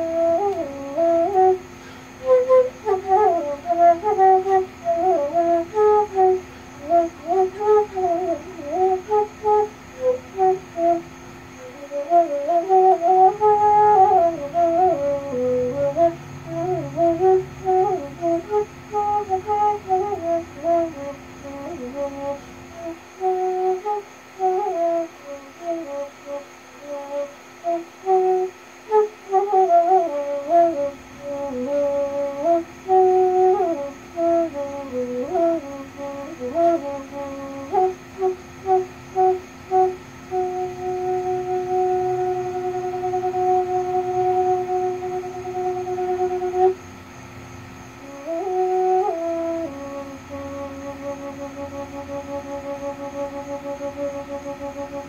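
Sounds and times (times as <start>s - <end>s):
bamboo flute melody: 0.0s - 46.8s, 48.0s - 55.0s
cicada drone: 0.0s - 55.0s.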